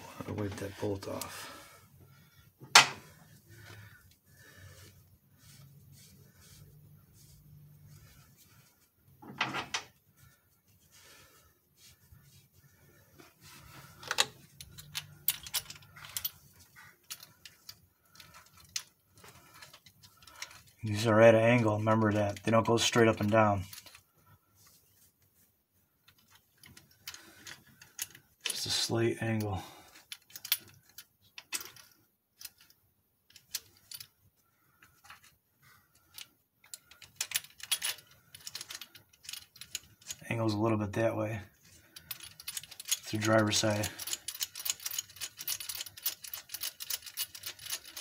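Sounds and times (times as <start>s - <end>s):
metallic clicks of rocker arms: 41.6s - 48.0s.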